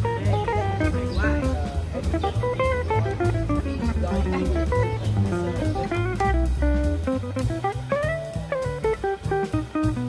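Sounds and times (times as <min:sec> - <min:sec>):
bass line: 0:00.0 - 0:10.0
drum beat: 0:00.0 - 0:10.0
plucked guitar melody: 0:00.0 - 0:10.0.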